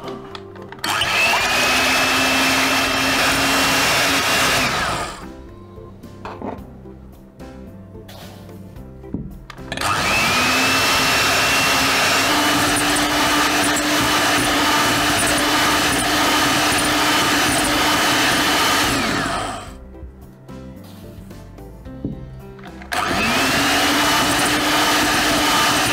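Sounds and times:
electric hand mixer whirring: 0:00.8 - 0:05.3, 0:09.7 - 0:19.8, 0:22.7 - 0:25.9.

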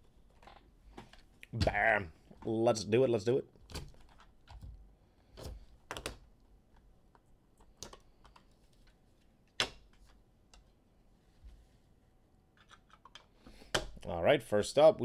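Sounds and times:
plastic card holders clicking and rustling: 0:03.6 - 0:10.7.

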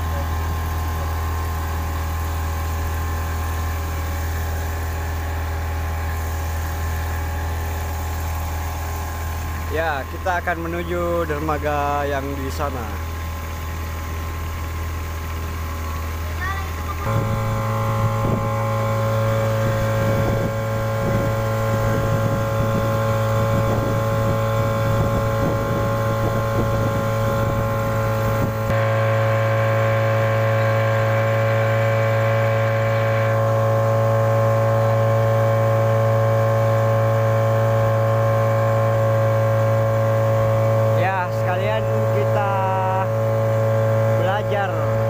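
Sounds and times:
outboard motor droning: 0:00.0 - 0:45.0
rough low rumble: 0:02.4 - 0:29.4.

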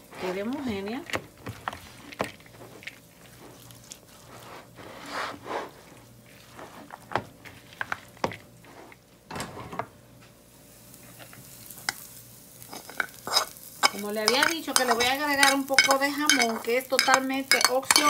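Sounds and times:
wet vegetables rustling and swishing: 0:00.0 - 0:09.0
spatula tapping glass bowl: 0:13.8 - 0:18.0.

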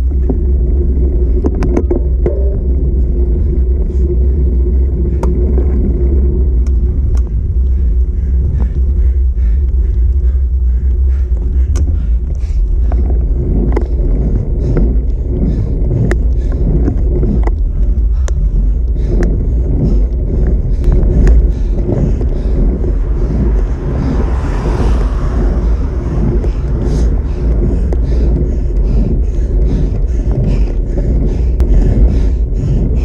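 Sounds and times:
bicycle clicks and rattles: 0:00.0 - 0:23.7, 0:26.2 - 0:33.0
wind and road rumble: 0:00.0 - 0:33.0
car passing: 0:19.6 - 0:33.0.

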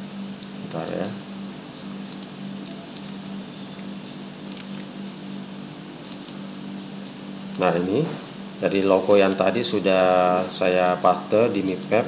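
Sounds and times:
low background hum: 0:00.0 - 0:12.0
computer mouse clicks: 0:02.1 - 0:03.3, 0:06.1 - 0:06.4, 0:10.7 - 0:12.0.

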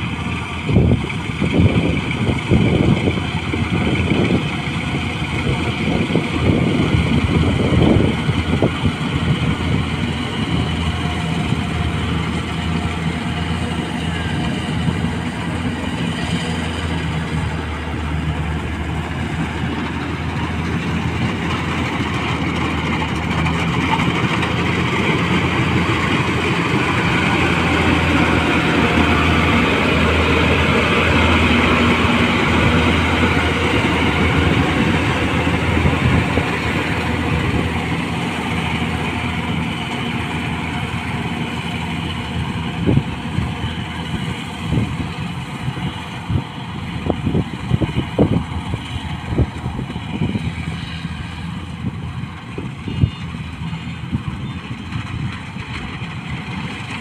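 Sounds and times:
combine harvester engine hum: 0:00.0 - 0:57.0.

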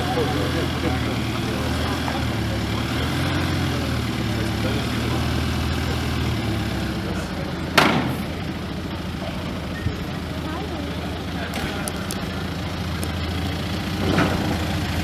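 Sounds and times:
truck engine running at low revs: 0:00.0 - 0:15.0
loud bang: 0:07.7 - 0:08.4.

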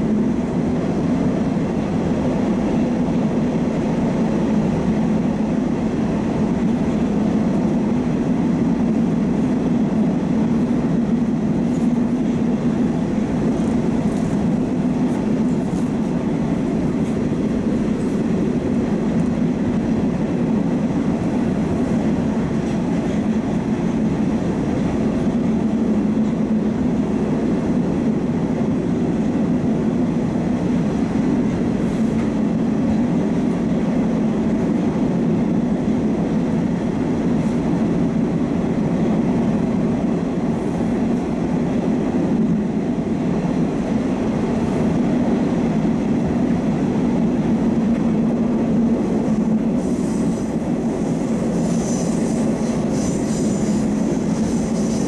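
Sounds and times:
train wheels rumbling in tunnel: 0:00.0 - 0:55.0
high wheel squeal: 0:51.5 - 0:55.0.

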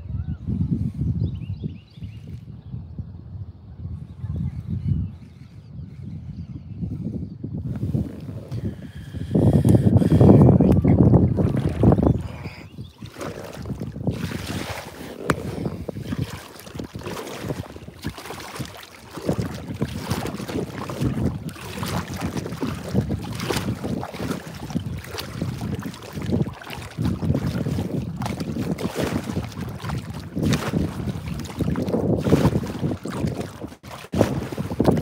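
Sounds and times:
wind buffeting microphone: 0:00.0 - 0:35.0
water splashing against boat hull: 0:07.8 - 0:35.0.

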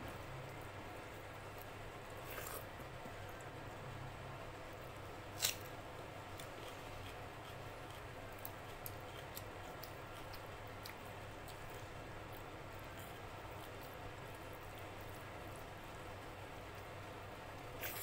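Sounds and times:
steady low hum: 0:00.0 - 0:18.0
fingers eating rice from plate: 0:06.3 - 0:15.8.

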